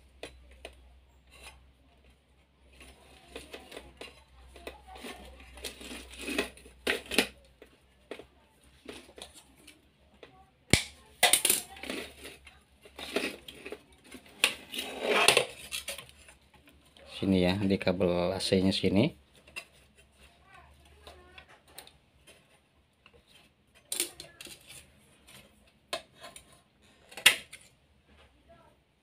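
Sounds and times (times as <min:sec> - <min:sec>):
hands handling wires: 0:19.2 - 0:27.8.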